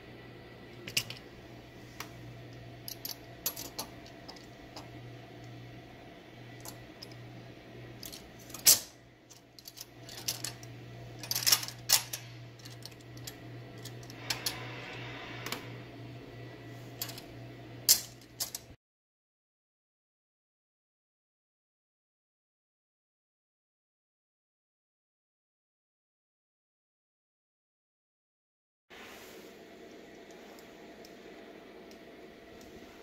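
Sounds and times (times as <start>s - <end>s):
steady low hum: 0.0s - 18.8s, 28.9s - 33.0s.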